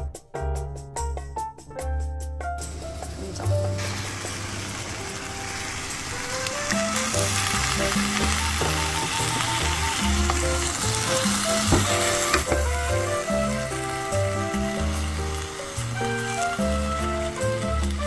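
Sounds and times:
soft background music: 0:00.0 - 0:18.0
food sizzling in a pot: 0:02.6 - 0:18.0
wooden spatula stirring: 0:06.7 - 0:17.6.

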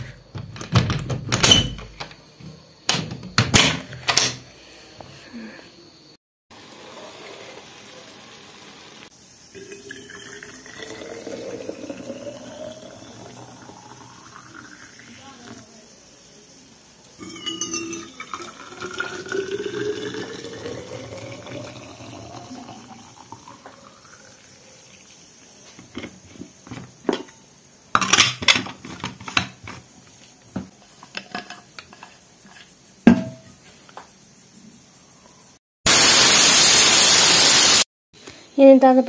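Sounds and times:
pressure cooker steam hissing: 0:06.5 - 0:09.5, 0:35.9 - 0:37.9
water pouring into a flask: 0:06.6 - 0:08.7, 0:09.5 - 0:15.6, 0:17.2 - 0:25.3.

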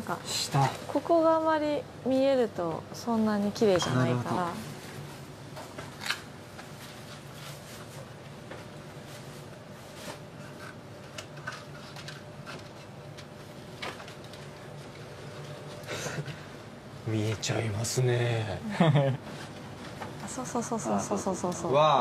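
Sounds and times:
low room hum: 0:00.0 - 0:22.0.

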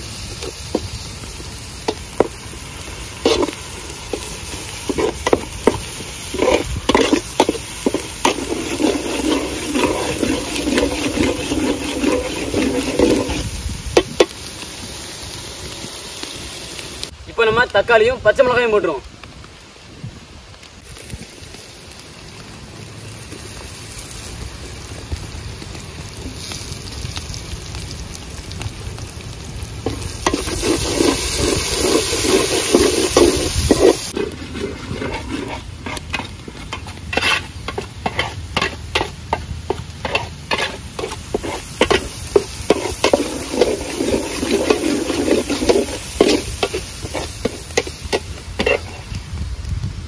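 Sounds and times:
vegetables sizzling in hot oil: 0:00.0 - 0:50.0
metal ladle scraping pot: 0:03.2 - 0:14.3, 0:29.9 - 0:49.1.

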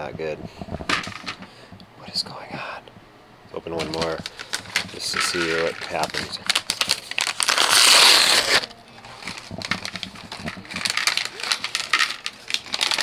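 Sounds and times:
packet crinkling: 0:03.7 - 0:13.0
plastic packet ripping open: 0:03.8 - 0:13.0.

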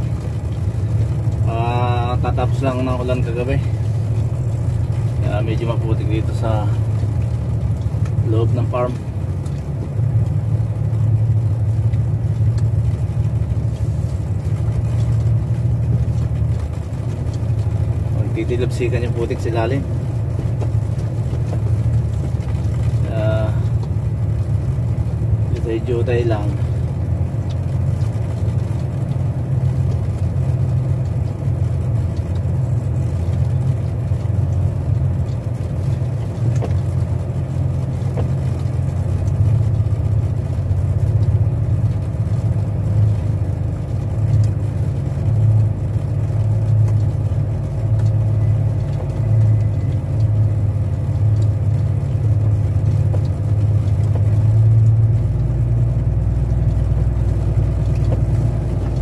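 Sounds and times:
diesel engine droning: 0:00.0 - 0:59.0.

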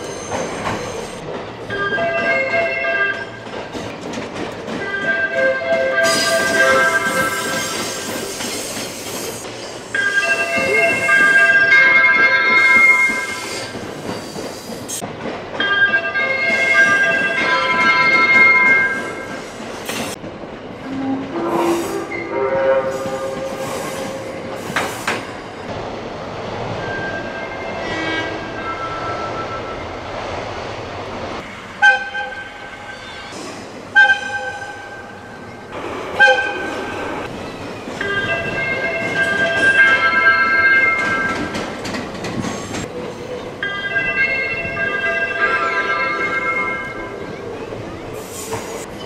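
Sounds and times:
wheel and rail noise: 0:00.0 - 0:49.0
train music horn melody: 0:04.8 - 0:08.0, 0:20.8 - 0:24.4, 0:27.8 - 0:29.0, 0:31.8 - 0:32.8, 0:33.9 - 0:35.1, 0:36.2 - 0:36.9.

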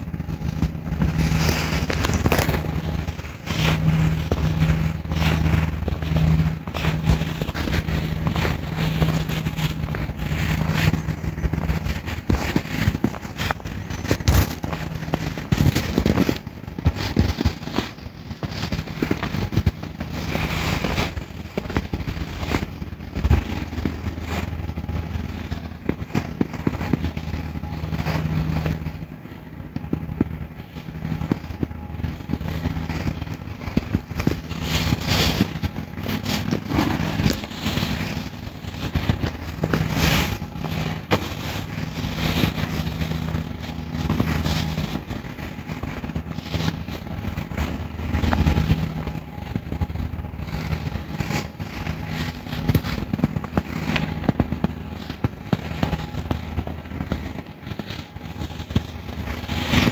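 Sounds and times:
crackling and clicking: 0:00.0 - 0:59.9
low hum: 0:00.0 - 0:59.9.

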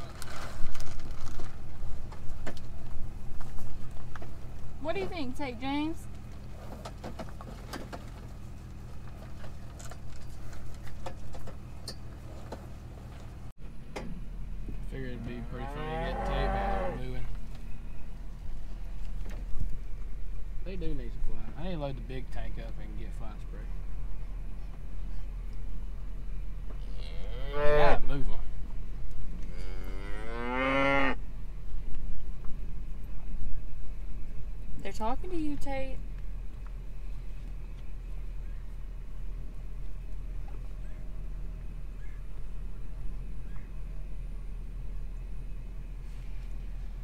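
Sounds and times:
steady low hum: 0:00.0 - 0:47.0
cattle mooing: 0:15.2 - 0:17.3, 0:26.8 - 0:28.1, 0:29.4 - 0:31.2.

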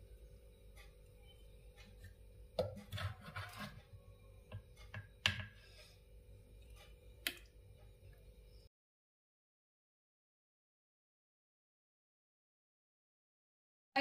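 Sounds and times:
faint steady hum: 0:00.0 - 0:08.7.

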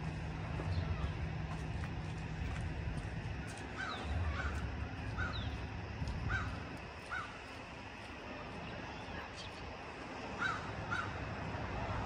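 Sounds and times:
crow cawing: 0:03.8 - 0:05.5, 0:06.2 - 0:07.4, 0:10.4 - 0:11.2.

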